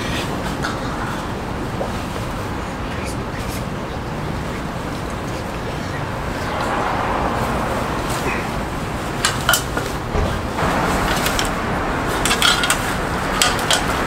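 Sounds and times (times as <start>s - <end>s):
stepladder clicking and rattling: 9.3s - 14.0s.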